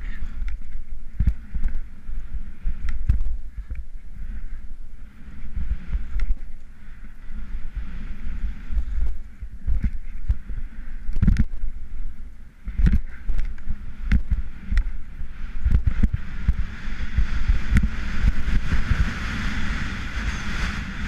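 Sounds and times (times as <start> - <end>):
wind buffeting microphone: 0.0 - 21.0
skis hissing through snow: 16.2 - 21.0.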